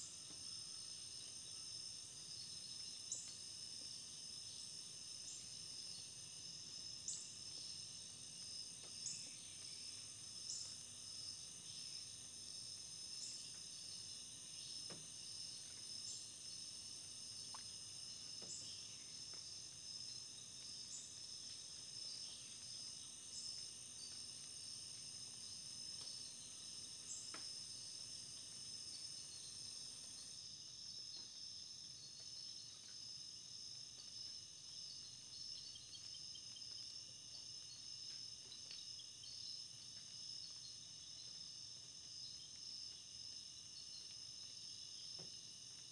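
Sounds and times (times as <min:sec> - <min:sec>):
high-pitched insect trilling: 0:17.3 - 0:31.2.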